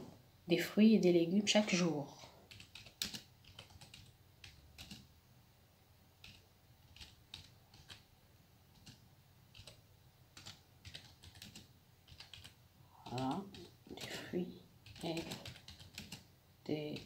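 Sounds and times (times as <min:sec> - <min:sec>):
keyboard typing: 0:02.5 - 0:05.1, 0:06.2 - 0:08.1, 0:08.7 - 0:14.2, 0:14.8 - 0:17.0.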